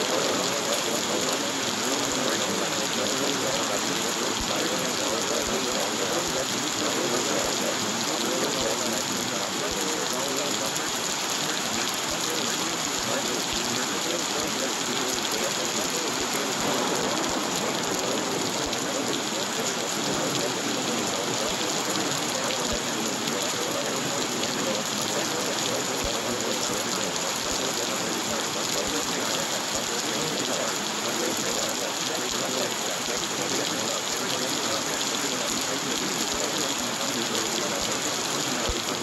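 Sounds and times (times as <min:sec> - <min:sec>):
steady rain: 0:00.0 - 0:39.0.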